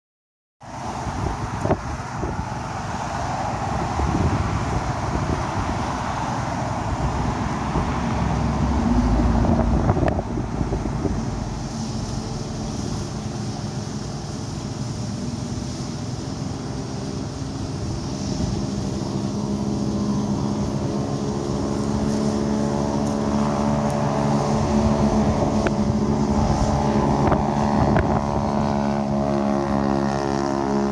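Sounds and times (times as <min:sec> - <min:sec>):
deep engine exhaust drone: 0:00.6 - 0:30.9
street traffic passing: 0:00.6 - 0:30.9
wind on microphone: 0:00.6 - 0:30.9.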